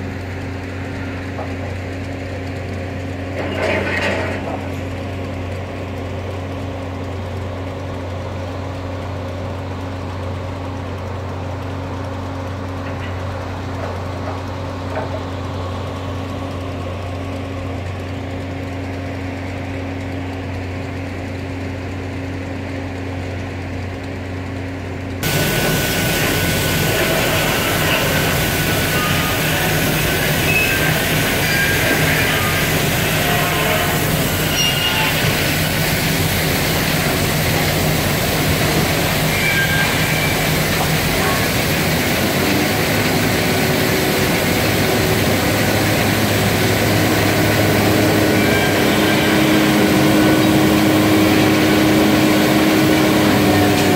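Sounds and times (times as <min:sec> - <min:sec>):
rough machine noise: 0:00.0 - 0:08.1, 0:09.2 - 0:53.9
machinery drone: 0:25.1 - 0:53.9.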